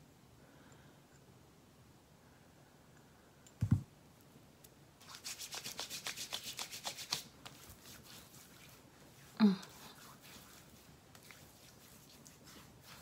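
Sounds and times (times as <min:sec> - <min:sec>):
hands rubbing cream into skin: 0:05.0 - 0:13.0.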